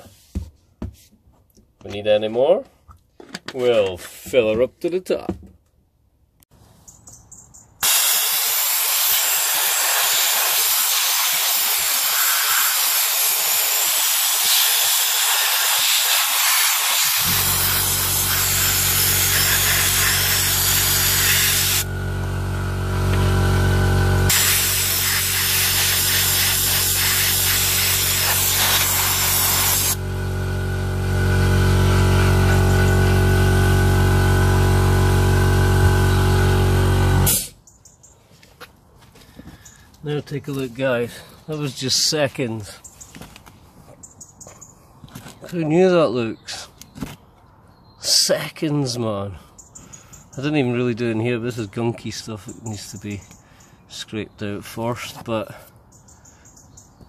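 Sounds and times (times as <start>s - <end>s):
sandblasting gun hissing: 7.8s - 21.9s, 24.3s - 30.0s
air compressor motor humming: 7.8s - 37.6s.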